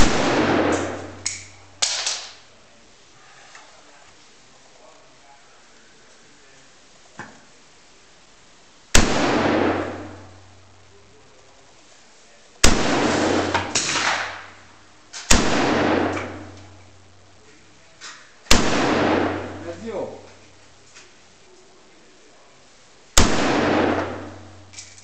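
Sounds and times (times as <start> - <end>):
rifle shots with echo: 0.0 - 2.4, 8.9 - 10.5, 12.6 - 17.0, 18.5 - 20.2, 23.2 - 25.0.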